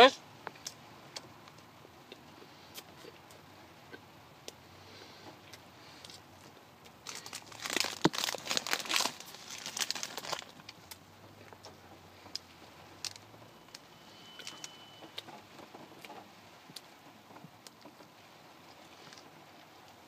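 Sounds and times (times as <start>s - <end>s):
foil wrapper crinkling and tearing: 6.9s - 11.0s.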